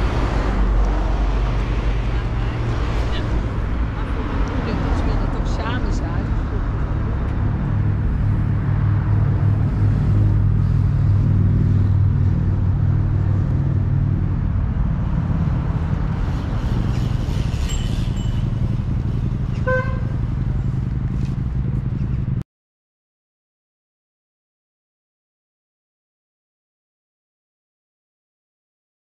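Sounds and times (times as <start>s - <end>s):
vehicle engines droning: 0.0s - 22.4s
horn toot: 19.5s - 20.2s.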